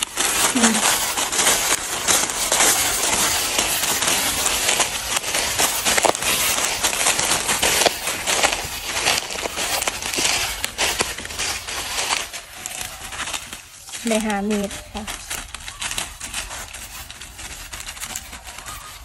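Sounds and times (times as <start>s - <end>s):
footsteps crunching dry leaves: 0.0s - 19.0s.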